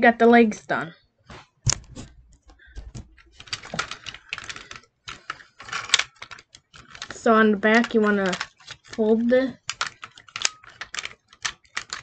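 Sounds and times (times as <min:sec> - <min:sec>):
plastic toy clicking and rattling: 0:02.8 - 0:12.0.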